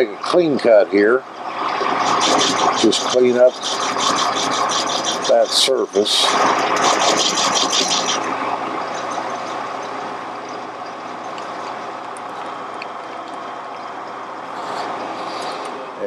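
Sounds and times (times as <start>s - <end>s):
lathe running: 1.2s - 15.8s
lathe cutting tool rasp: 1.4s - 10.0s.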